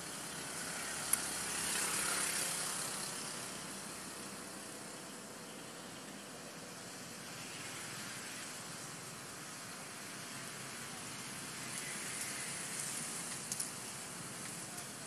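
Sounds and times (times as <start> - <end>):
outdoor background hiss: 0.0 - 15.0
faint clicks: 13.3 - 13.8.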